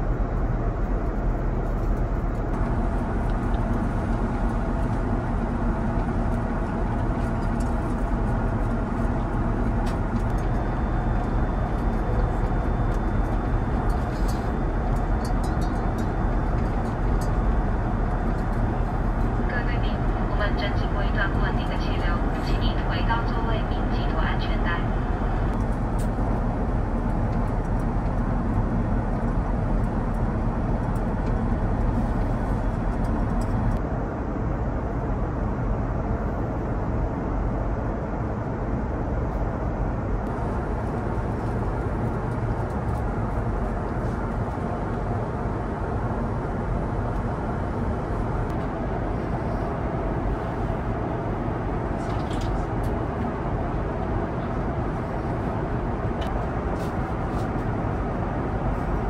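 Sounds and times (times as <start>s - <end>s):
airplane cabin noise: 0.0s - 59.0s.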